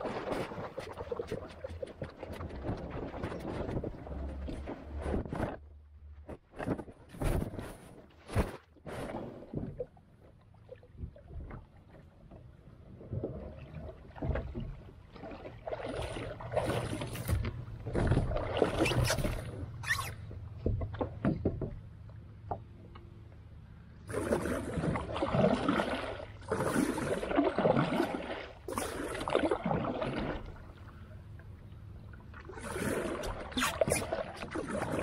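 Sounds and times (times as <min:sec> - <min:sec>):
creek water splashing: 0:15.0 - 0:21.2, 0:24.0 - 0:31.0, 0:32.0 - 0:35.0.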